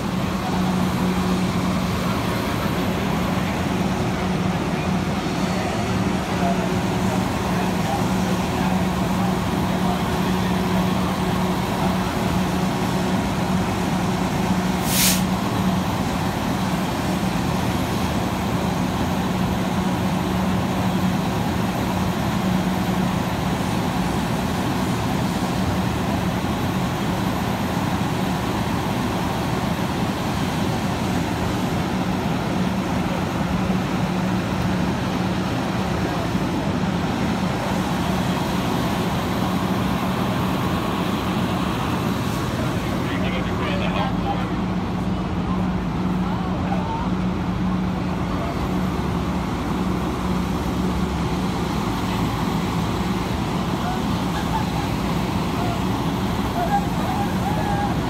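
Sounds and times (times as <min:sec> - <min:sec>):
diesel engine droning: 0:00.0 - 0:58.0
air hiss: 0:14.8 - 0:15.4.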